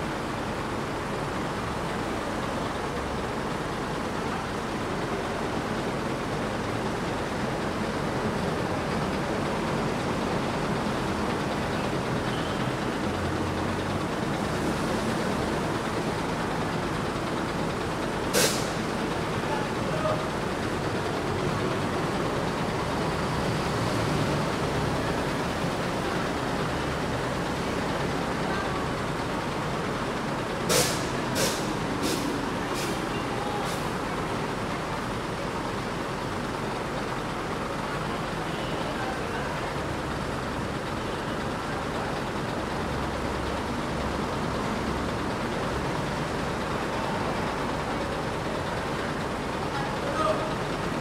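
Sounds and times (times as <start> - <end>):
diesel bus engine idling: 0.0 - 51.0
short air hisses: 18.3 - 18.8, 30.7 - 33.0.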